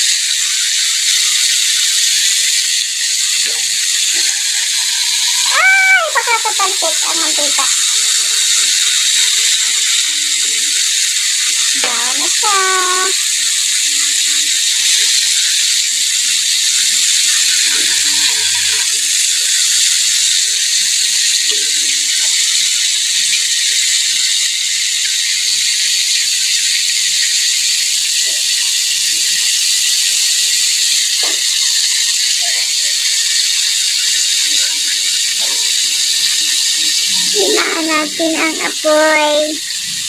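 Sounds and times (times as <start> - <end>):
oil sizzling and bubbling: 0.0 - 40.0.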